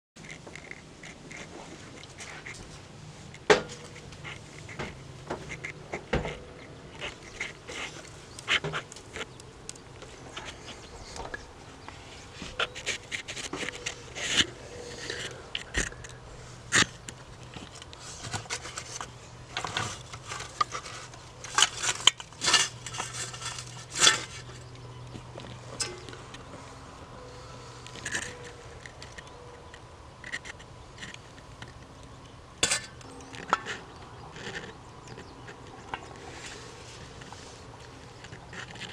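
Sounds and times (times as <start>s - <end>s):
low steady hum: 0.2s - 38.9s.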